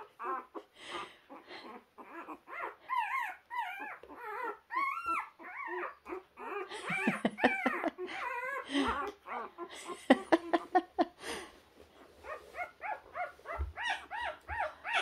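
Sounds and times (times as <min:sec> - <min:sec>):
puppies whimpering: 0:00.0 - 0:10.7, 0:12.0 - 0:15.0.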